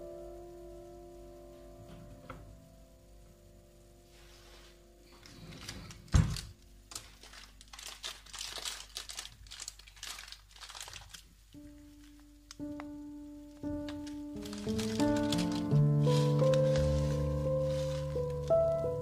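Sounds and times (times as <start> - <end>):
faint background music: 0.0 - 19.0
crinkling rustling handling: 4.1 - 19.0.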